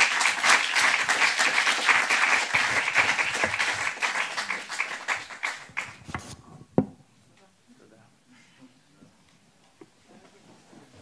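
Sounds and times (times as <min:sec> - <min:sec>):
audience applauding: 0:00.0 - 0:06.1.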